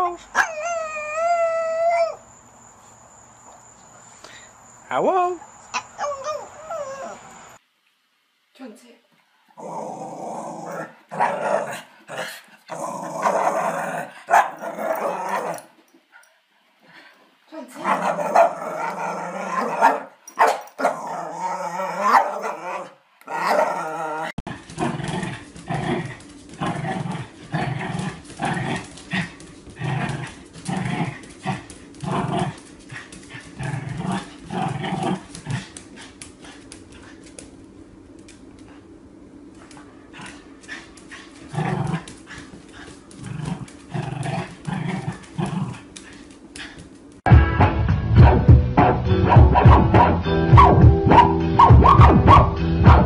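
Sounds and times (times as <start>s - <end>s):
small dog growling: 9.6s - 15.7s, 17.8s - 20.1s, 20.8s - 37.2s, 40.1s - 46.2s
small dog barking: 14.3s - 15.6s, 17.8s - 18.6s, 19.6s - 21.1s, 22.0s - 23.7s.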